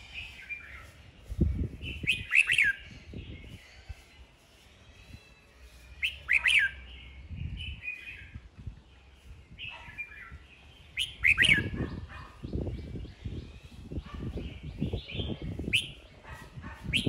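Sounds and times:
bird whistling sharp notes: 0:01.9 - 0:02.8, 0:06.0 - 0:06.8, 0:11.0 - 0:11.8, 0:15.7 - 0:16.0.

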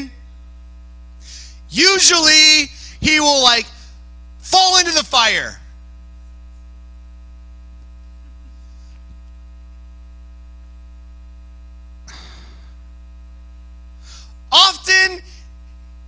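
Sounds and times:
electrical mains hum: 0:00.0 - 0:16.0
faint rustle or breath: 0:08.5 - 0:09.2.

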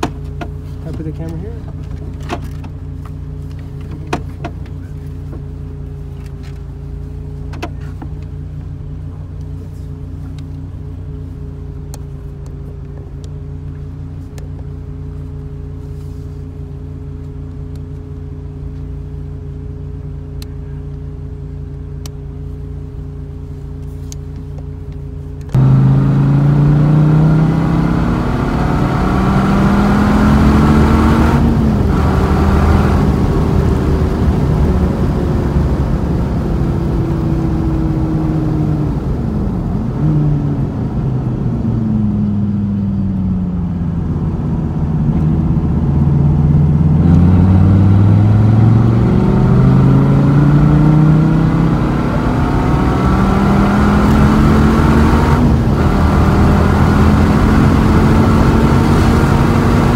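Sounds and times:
car engine accelerating hard: 0:25.4 - 0:59.9.

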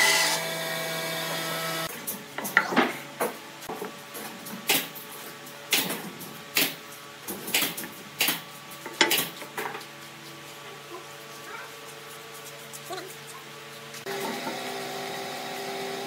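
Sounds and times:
faint machine hum: 0:00.0 - 0:16.0.

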